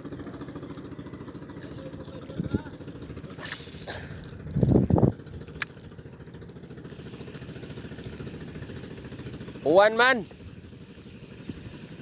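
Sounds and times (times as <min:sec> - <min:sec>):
loud low double rumble: 0:00.0 - 0:12.0
small engine running: 0:00.0 - 0:12.0.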